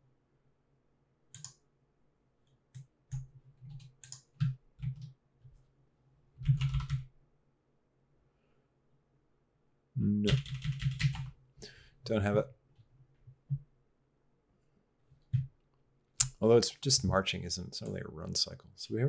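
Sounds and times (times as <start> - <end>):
keyboard typing: 1.3 - 1.6, 2.7 - 5.2, 6.4 - 7.1, 10.2 - 11.3.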